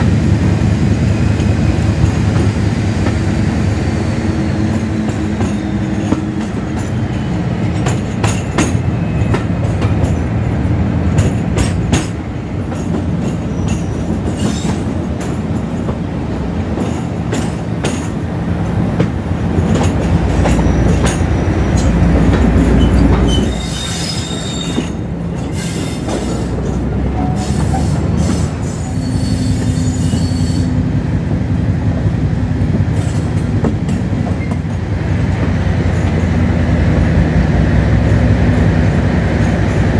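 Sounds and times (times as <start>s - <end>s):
diesel locomotive engine droning: 0.0s - 39.9s
high-pitched wheel squeal: 22.8s - 26.5s, 27.2s - 30.8s.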